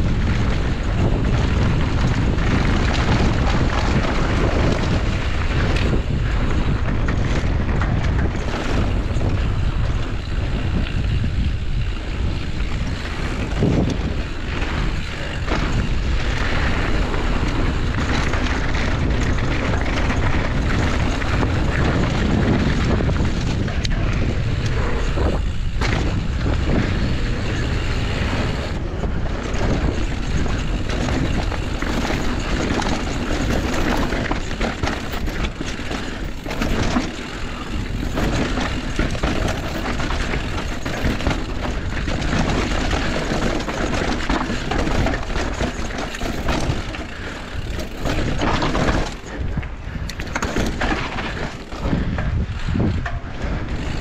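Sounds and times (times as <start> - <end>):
bike tyres rolling over dirt: 0.0 - 54.0
wind buffeting microphone: 0.0 - 54.0
bike knocking over bumps: 12.9 - 27.7, 29.3 - 54.0.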